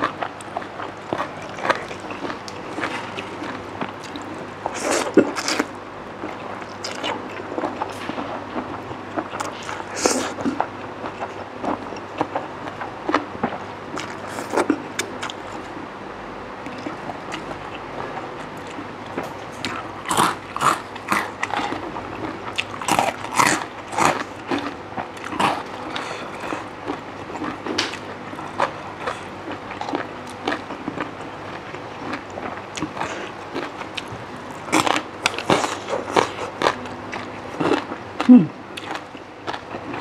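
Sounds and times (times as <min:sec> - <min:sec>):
crunching crisp snack: 0:18.5 - 0:40.0.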